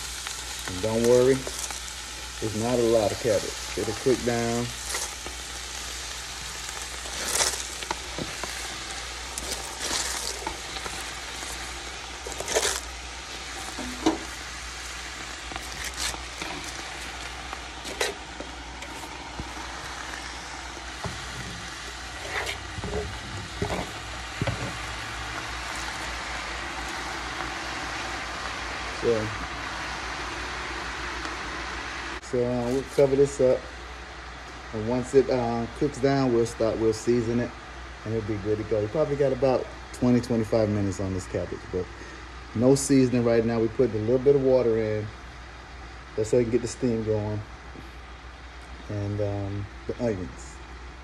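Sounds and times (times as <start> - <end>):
onions sizzling in oil: 0.0 - 51.0
cabbage leaves rustling and knocking: 2.7 - 14.6, 15.2 - 26.2.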